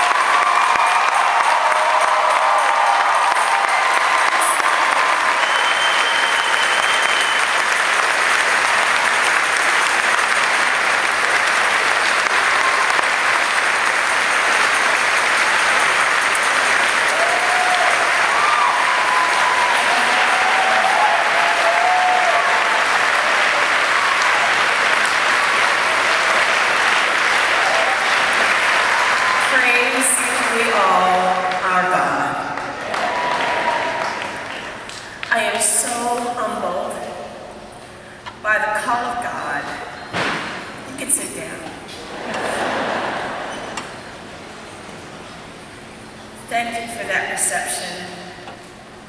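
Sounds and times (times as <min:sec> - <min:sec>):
large audience applauding: 0:00.0 - 0:35.6, 0:42.1 - 0:44.8.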